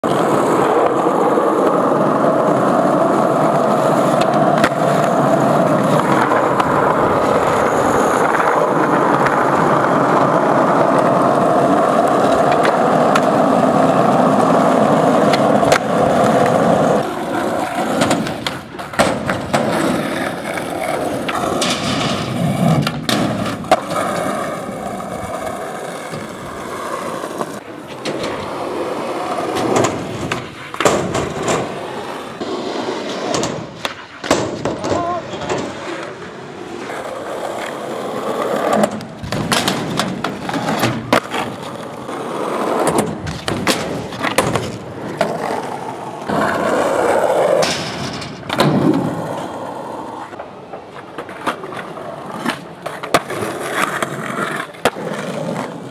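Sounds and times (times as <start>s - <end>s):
skateboard clacking on ground: 0.0s - 55.9s
skateboard wheels rolling on asphalt: 0.0s - 55.9s.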